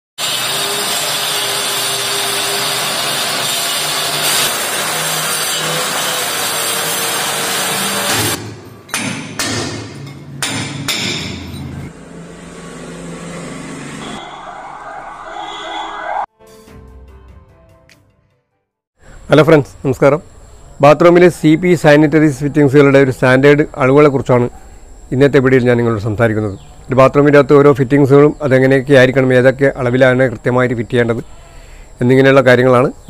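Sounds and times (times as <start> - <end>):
power tool cutting masonry: 0.2 - 8.4.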